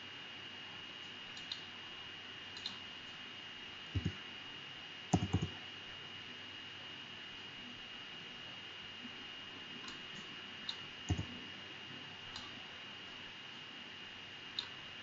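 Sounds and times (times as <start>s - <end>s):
mouse clicks: 1.4s - 1.7s, 2.6s - 2.8s, 4.0s - 4.2s, 5.2s - 5.5s, 10.7s - 11.3s, 14.6s - 14.8s
keyboard key presses: 4.0s - 4.2s, 5.2s - 5.5s, 11.1s - 11.3s.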